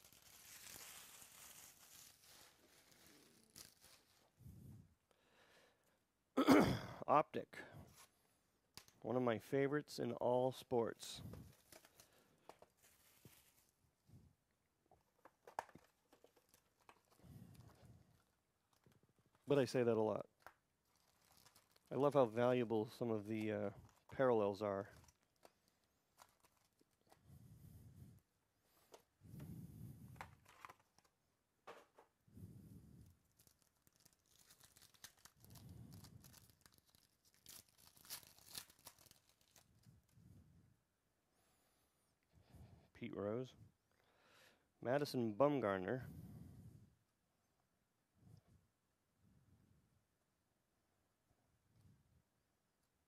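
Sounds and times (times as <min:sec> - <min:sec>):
wrapper crinkling and tearing: 0:00.0 - 0:04.3, 0:11.5 - 0:13.8, 0:15.2 - 0:19.5, 0:20.3 - 0:27.2, 0:30.2 - 0:31.2, 0:33.2 - 0:40.1
card packs rustling: 0:11.0 - 0:13.8, 0:15.0 - 0:27.2, 0:30.2 - 0:32.1, 0:33.2 - 0:39.9.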